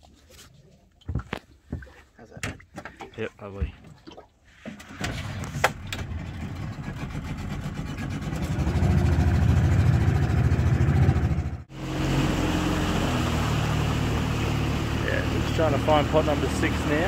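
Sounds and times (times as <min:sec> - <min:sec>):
outboard motor running: 0:04.9 - 0:17.0.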